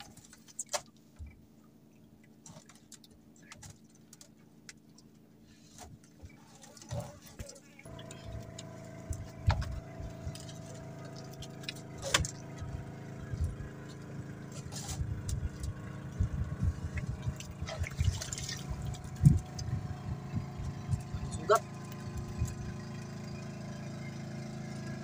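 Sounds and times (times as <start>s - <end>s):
boat engine idling: 5.3s - 25.0s.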